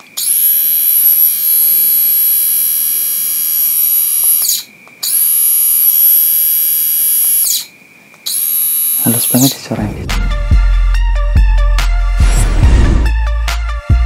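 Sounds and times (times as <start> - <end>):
electric shaver whining: 0.0 - 7.7, 8.3 - 9.6.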